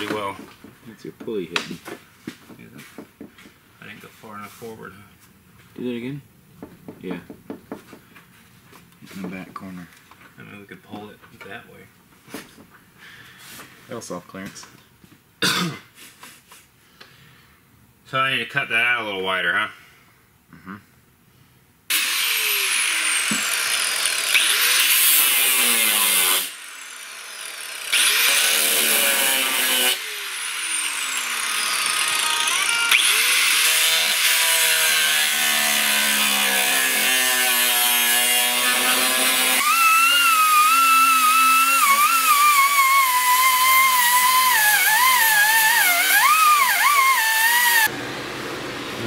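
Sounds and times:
angle grinder cutting steel: 0.0 - 0.4, 21.9 - 47.9.

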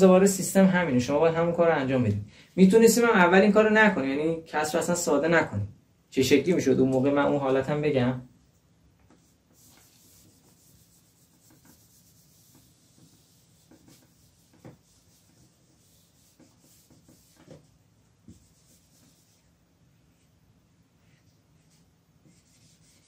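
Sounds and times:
eraser rubbing on whiteboard: 9.1 - 20.2, 21.1 - 23.0.

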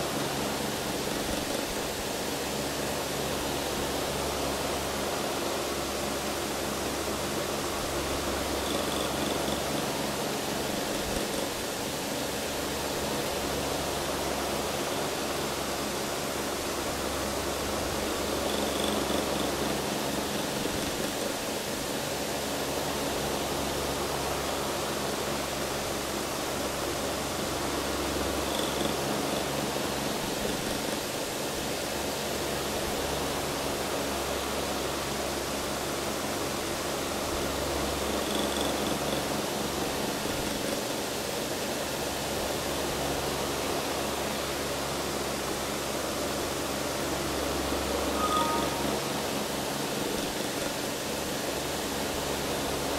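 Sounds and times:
electric fan running: 0.0 - 48.2, 48.8 - 52.9.

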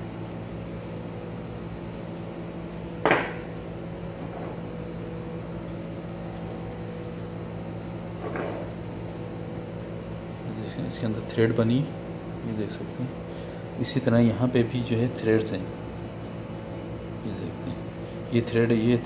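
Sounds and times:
steady low hum: 0.0 - 19.0
metal clink on table: 3.0 - 3.4.

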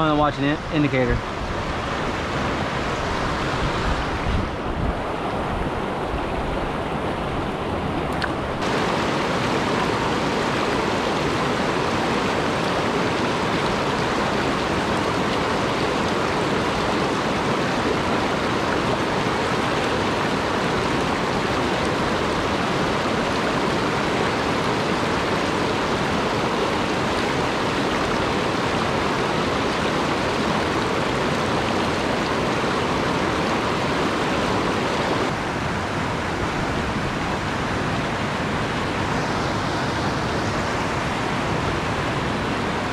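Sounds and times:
stream rushing over rocks: 0.0 - 42.9.

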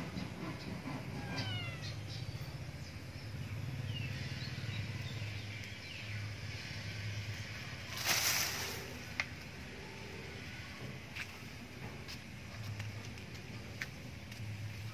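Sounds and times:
kitten mewing: 1.2 - 2.0.

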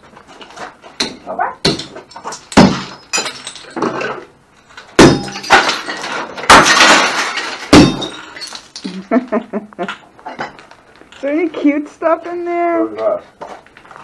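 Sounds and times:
glass smashing: 1.0 - 9.2.

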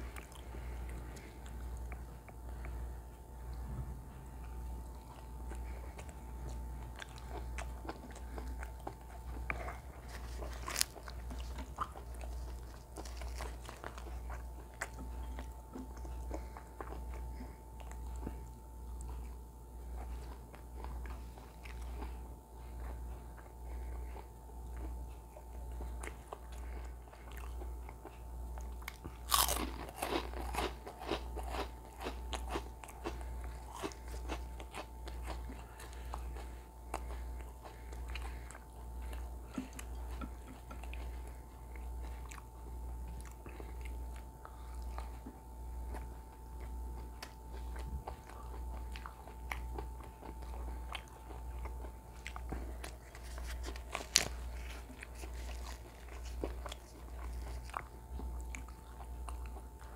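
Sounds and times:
person chewing: 0.0 - 59.9
steady low hum: 0.0 - 59.9
crunching bite into crisp snack: 29.2 - 35.4.

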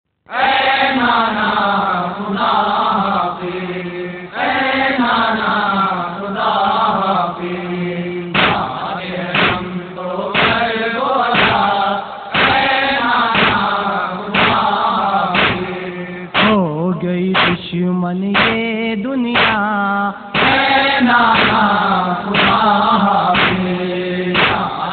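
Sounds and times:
voices chanting a lament: 0.3 - 24.9
chest-beating slaps: 8.3 - 16.6, 17.4 - 17.7, 18.4 - 18.7, 19.4 - 19.7, 20.4 - 22.8, 23.4 - 24.9.

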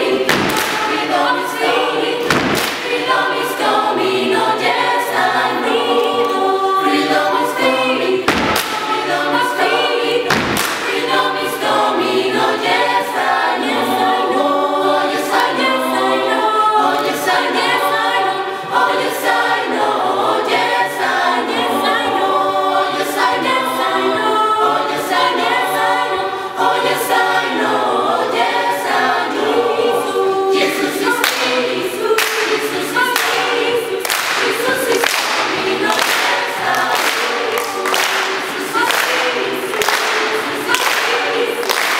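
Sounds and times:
choir singing a cappella: 0.0 - 41.9
hand clapping: 0.3 - 1.2, 2.2 - 3.2, 8.3 - 9.1, 10.3 - 11.2, 31.2 - 31.6, 32.2 - 41.9.

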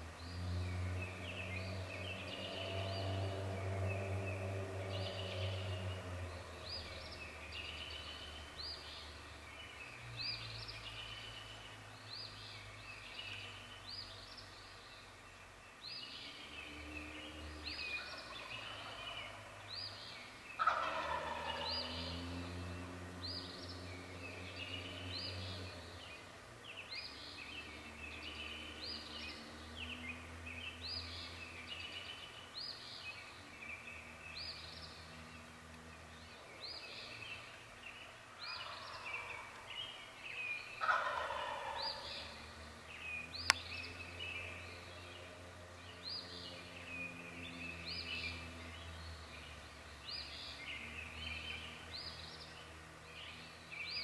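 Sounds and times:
songbird chirping: 0.0 - 54.0
turkey gobbling: 20.6 - 21.7, 38.6 - 39.6, 40.8 - 42.2.

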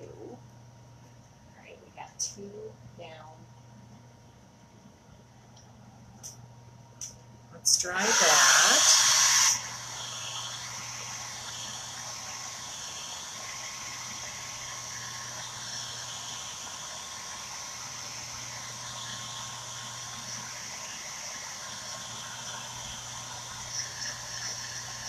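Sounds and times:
faint low hum: 0.0 - 8.0.

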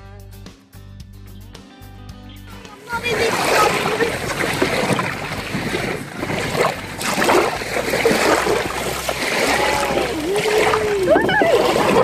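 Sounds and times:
lake water splashing and lapping: 2.5 - 12.0
wind rumbling on microphone: 2.9 - 12.0.

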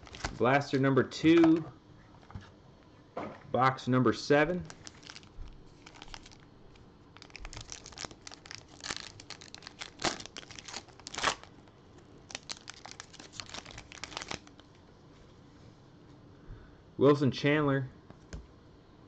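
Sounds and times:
foil wrapper tearing and crinkling: 0.0 - 0.4, 4.7 - 6.4, 7.2 - 11.6, 12.2 - 14.7.

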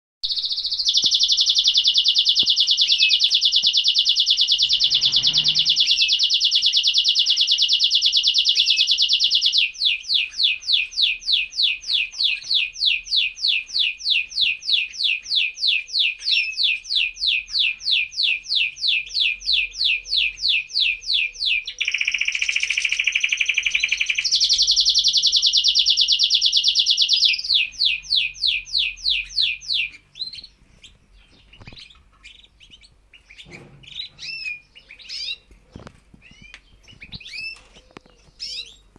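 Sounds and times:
canary chirps: 0.2 - 38.9
canary singing trills: 0.2 - 38.9.

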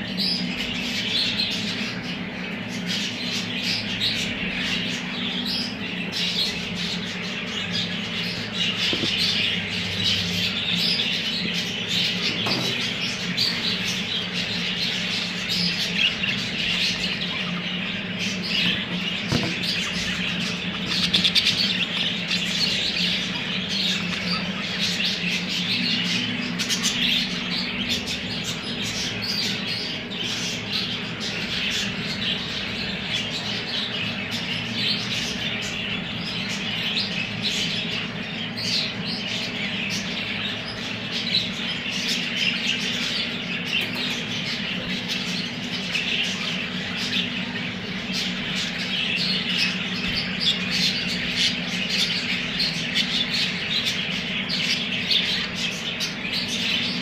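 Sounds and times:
budgerigars chattering and chirping: 0.0 - 57.0
steady low hum: 0.0 - 57.0.

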